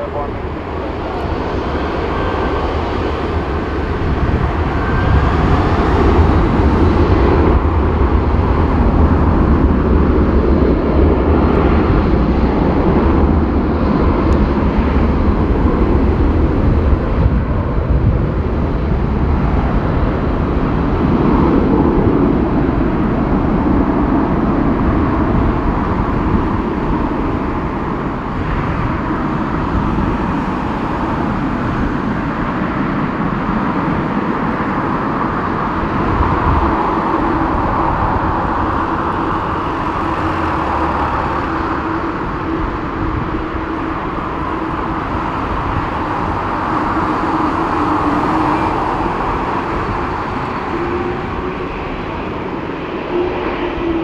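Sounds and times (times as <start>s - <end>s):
jet engines roaring: 0.0s - 54.0s.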